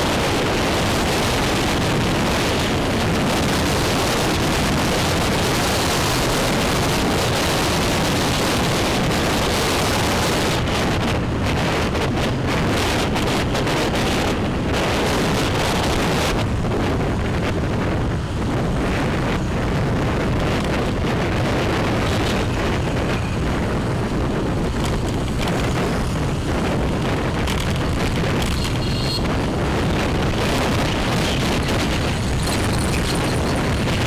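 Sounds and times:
motorbike noise: 0.0 - 34.0
wind rush on microphone: 0.0 - 34.0.

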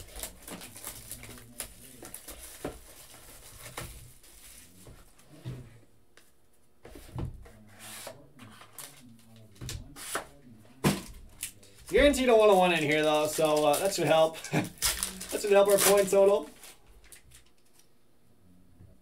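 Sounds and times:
plastic wrap rustling and tearing: 0.0 - 4.8, 11.4 - 17.8.

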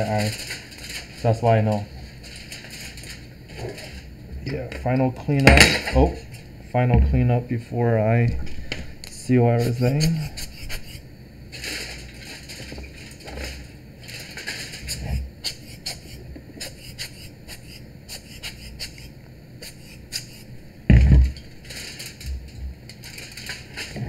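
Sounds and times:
dull thump: 20.9 - 21.3.

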